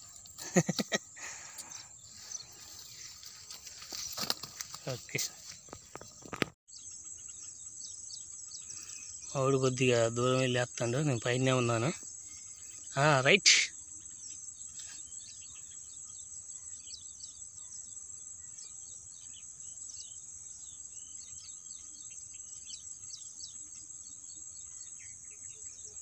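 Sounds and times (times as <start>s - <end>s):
bird chirps: 0.0s - 26.0s
insects droning: 0.0s - 26.0s.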